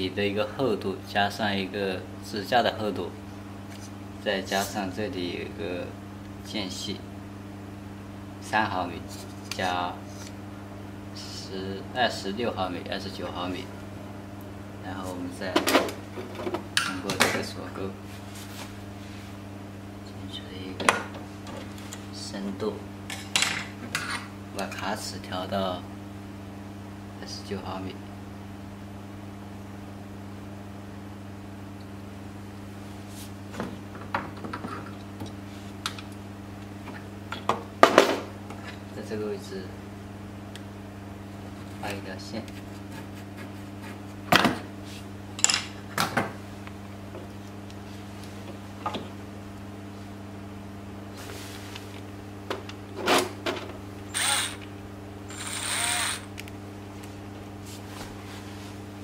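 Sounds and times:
low electrical hum: 0.0 - 59.0
cordless drill running: 54.1 - 54.6, 55.3 - 56.3.

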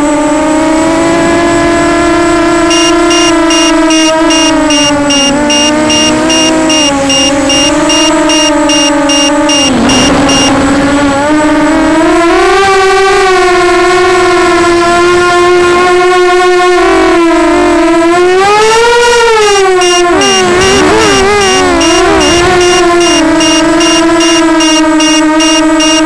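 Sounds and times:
quadcopter motors whining: 0.0 - 13.3, 18.6 - 26.0
rapid alarm beeps: 2.6 - 10.6, 19.8 - 26.0.

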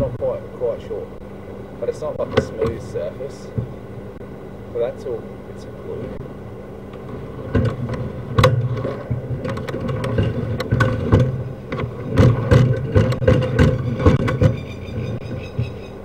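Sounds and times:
engine running steadily: 0.0 - 16.0
sharp knocks and clicks: 2.2 - 3.8, 6.9 - 16.0.

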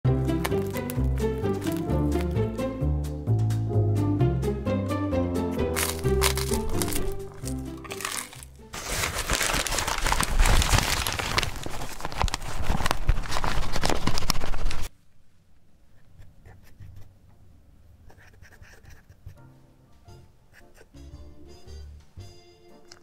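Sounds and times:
music: 0.1 - 9.7, 19.3 - 23.0
paper bag crinkling: 0.2 - 2.4, 5.7 - 14.9.

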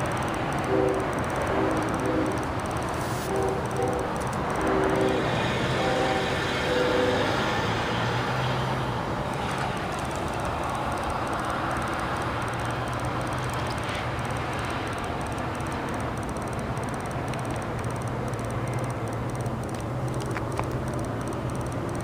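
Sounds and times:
short pitched tones: 0.0 - 7.4
diesel locomotive engine drone: 0.0 - 22.0
train noise: 0.0 - 22.0.

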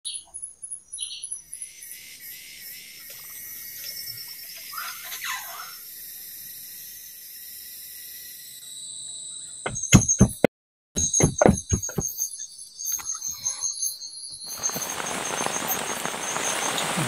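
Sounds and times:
insects chirping: 0.1 - 10.4, 11.0 - 17.0
rapid sharp knocks: 9.7 - 12.1.

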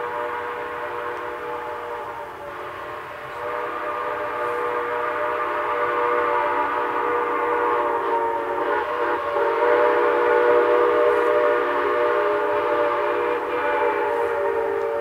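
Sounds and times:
steam hissing: 0.0 - 15.0
steam locomotive chime whistle: 0.0 - 15.0.

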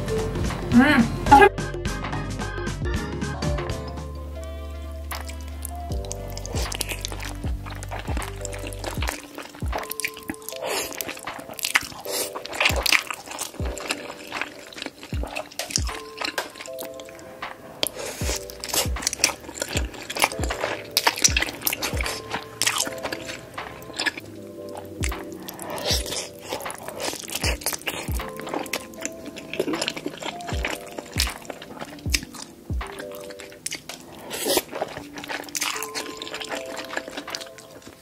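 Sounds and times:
background music with steady beat: 0.0 - 38.0
close-miked chewing and biting: 3.8 - 38.0.

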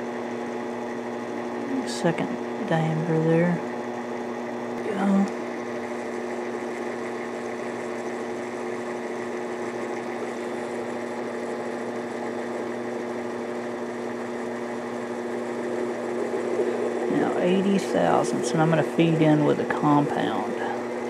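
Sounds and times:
lathe motor humming: 0.0 - 21.0.

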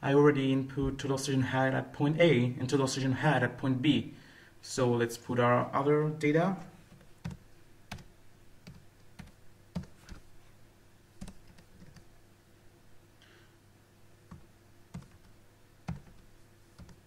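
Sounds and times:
computer keyboard keystrokes: 6.9 - 10.3, 11.2 - 12.1, 14.3 - 15.3, 15.9 - 16.2, 16.8 - 17.0.

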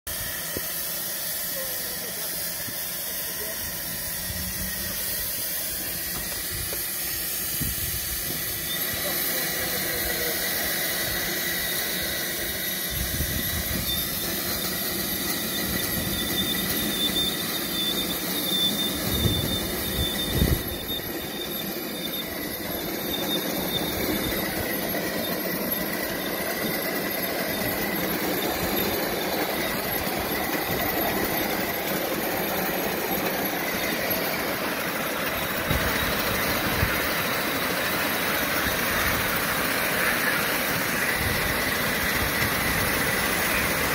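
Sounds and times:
high squeal and hiss: 0.1 - 43.9
steam locomotive running: 0.1 - 43.9.

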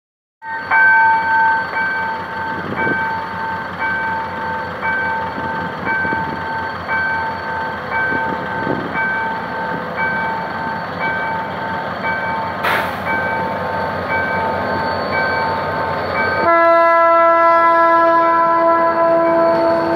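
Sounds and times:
level-crossing warning bell: 0.4 - 19.9
train rumble: 0.6 - 19.9
short sharp noise: 12.6 - 13.2.

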